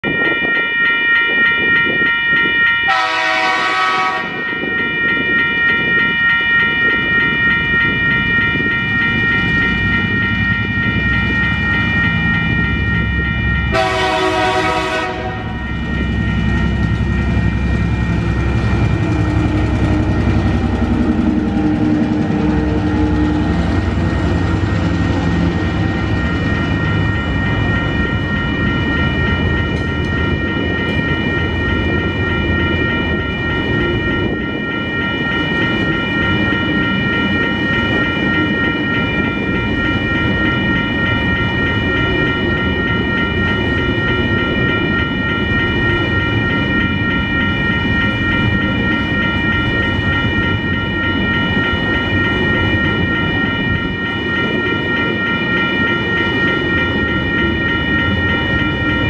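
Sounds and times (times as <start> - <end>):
level crossing bells ringing: 0.0 - 59.0
locomotive horn blasts: 2.9 - 4.5, 13.7 - 15.6
locomotive engine rumbling: 8.1 - 34.6.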